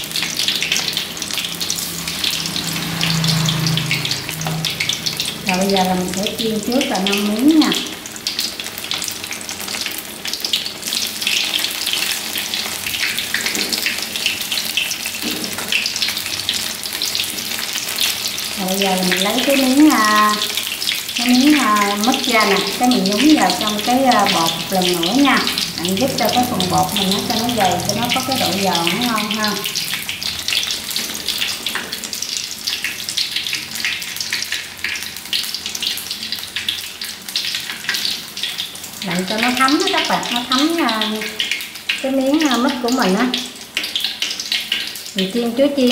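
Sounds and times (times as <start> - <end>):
deep-frying sizzle and crackle: 0.0 - 45.9.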